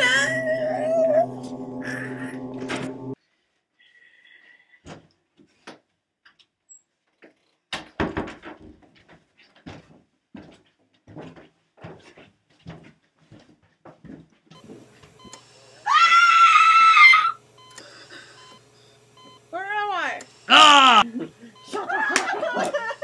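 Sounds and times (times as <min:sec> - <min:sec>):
footsteps on a staircase: 0:08.6 - 0:14.8
loud high-pitched scream: 0:15.8 - 0:17.4, 0:20.5 - 0:21.0.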